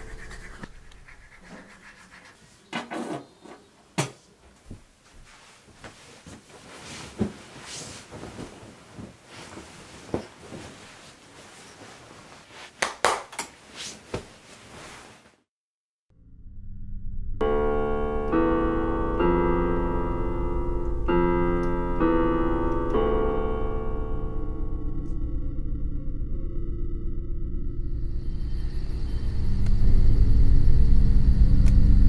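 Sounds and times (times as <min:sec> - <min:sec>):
toothbrush scrubbing: 0:00.0 - 0:02.7
bedding rustling: 0:04.2 - 0:12.9, 0:13.6 - 0:15.4.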